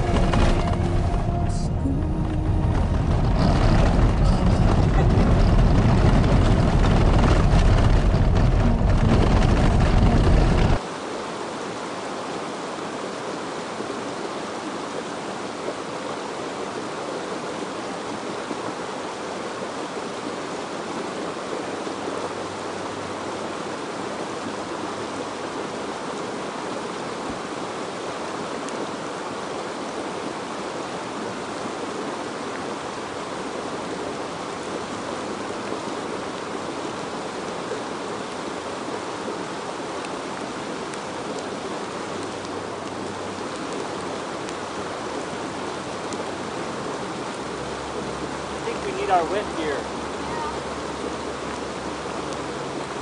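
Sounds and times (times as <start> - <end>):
loud low rumble: 0.0 - 10.8
mountain stream rushing: 0.0 - 53.0.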